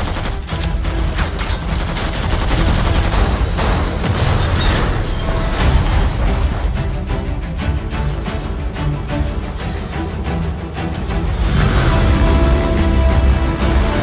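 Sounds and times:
rapid machine gun fire: 0.0s - 4.8s.

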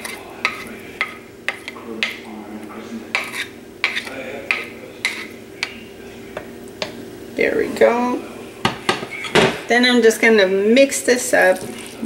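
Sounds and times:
wooden spatula scraping a plate: 0.0s - 2.1s, 3.1s - 5.8s
steady low hum: 0.0s - 12.0s.

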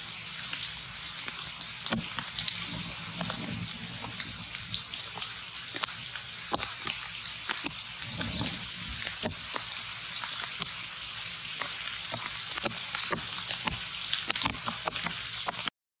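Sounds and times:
crackling ticks: 11.6s - 15.7s.

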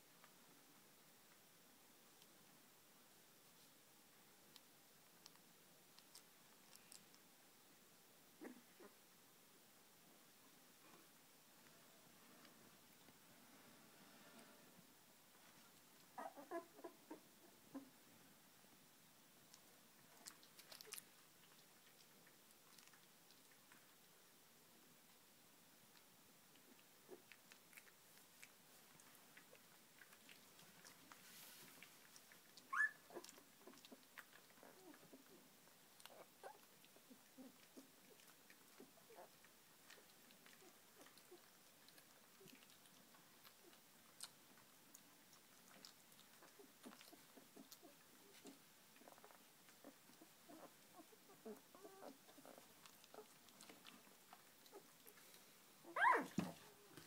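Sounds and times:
puppies mouthing faint clicks: 4.5s - 7.2s, 19.4s - 24.0s, 25.9s - 57.0s
puppies squeaking and grunting: 16.1s - 17.9s, 32.0s - 35.4s, 45.5s - 55.2s, 55.8s - 57.0s
puppy squeak: 32.7s - 33.0s, 55.9s - 56.4s.

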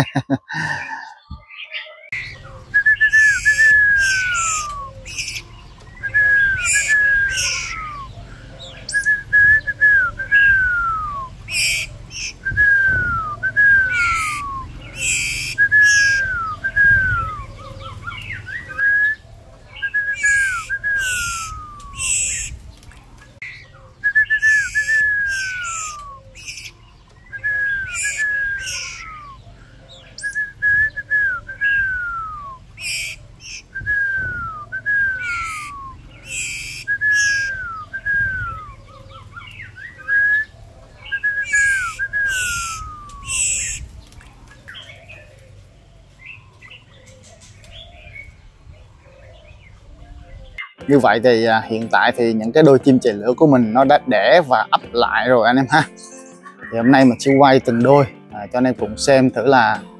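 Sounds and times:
descending bird whistles: 0.0s - 51.1s
fledgling birds begging chirps: 0.0s - 59.9s.

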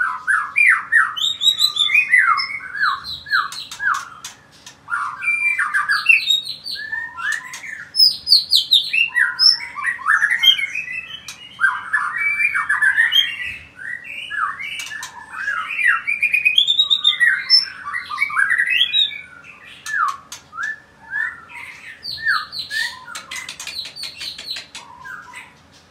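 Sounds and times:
bird singing whistled phrases: 0.0s - 4.3s, 4.9s - 23.4s
sharp bird clicks: 3.4s - 4.8s, 14.8s - 15.2s, 22.7s - 25.4s.

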